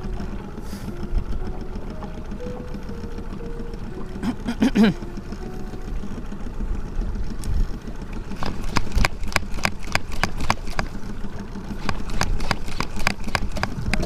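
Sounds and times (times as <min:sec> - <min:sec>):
boat engine idling: 0:00.0 - 0:14.0
fishing reel clicking: 0:08.4 - 0:14.0.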